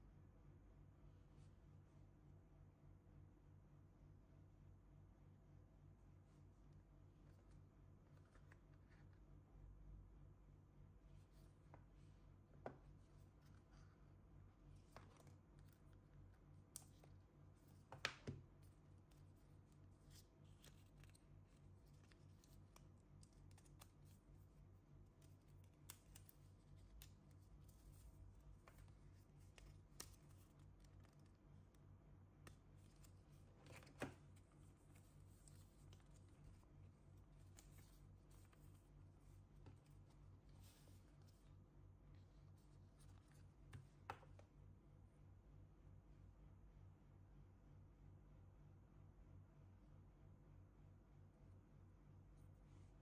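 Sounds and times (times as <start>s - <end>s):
low steady hum: 0.0s - 53.0s
cardboard and paper rustling: 32.6s - 41.4s.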